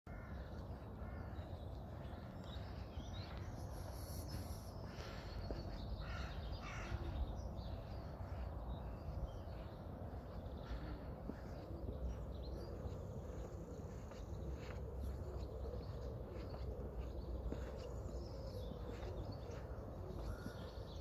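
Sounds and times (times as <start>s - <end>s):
crows cawing: 0.1s - 2.6s, 4.9s - 9.0s, 20.2s - 20.6s
other birds calling: 0.1s - 21.0s.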